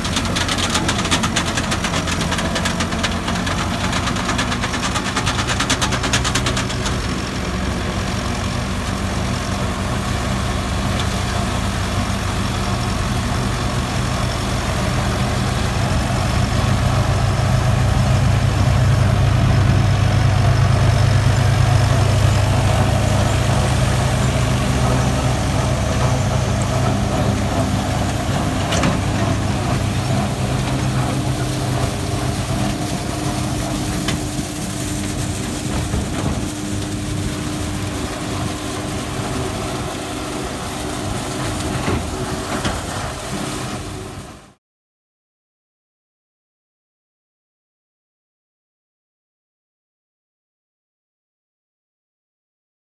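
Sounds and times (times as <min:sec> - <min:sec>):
straw chopper running: 0:00.0 - 0:09.3, 0:14.8 - 0:44.1
diesel tractor engine under load: 0:00.0 - 0:44.6.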